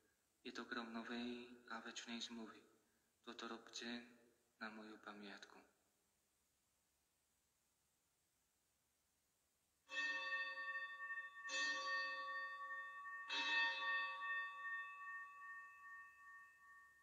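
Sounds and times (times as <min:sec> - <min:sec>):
altar bell ringing: 0:09.9 - 0:17.0.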